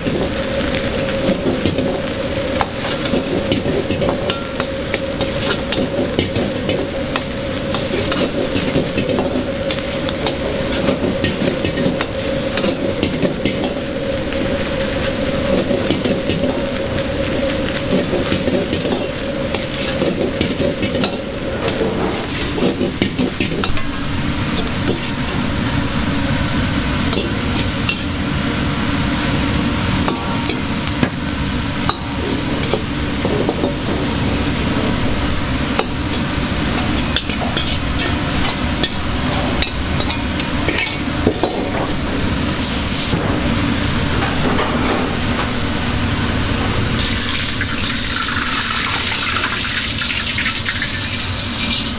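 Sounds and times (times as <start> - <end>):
rice sizzling in a wok: 0.0 - 51.9
metal clacking against wok: 2.6 - 13.8
metal ladle scraping wok: 17.9 - 26.0, 29.9 - 43.7.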